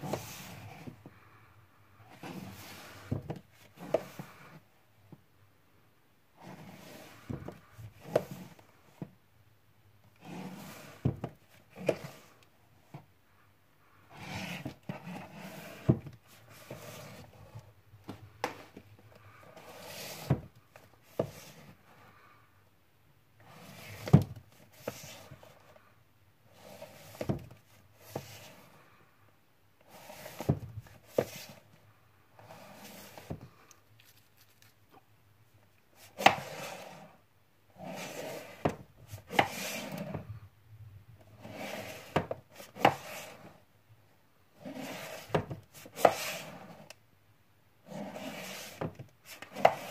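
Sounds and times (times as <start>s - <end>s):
cases scraping on shelf: 0.0s - 1.0s, 2.1s - 4.6s, 6.4s - 9.1s, 10.2s - 12.3s, 14.1s - 17.7s, 19.4s - 21.8s, 23.4s - 25.8s, 26.5s - 28.8s, 29.8s - 31.7s, 32.4s - 33.5s, 36.0s - 40.4s, 41.2s - 43.6s, 44.6s - 46.9s, 47.8s - 49.9s.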